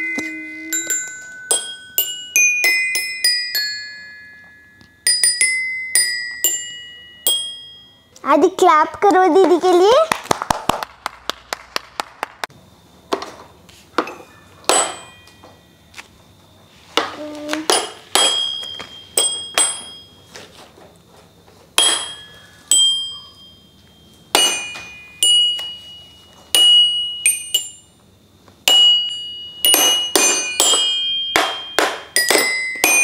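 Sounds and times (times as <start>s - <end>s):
toy xylophone notes: 0.0s - 8.2s, 17.7s - 20.2s, 21.8s - 27.9s, 28.6s - 33.0s.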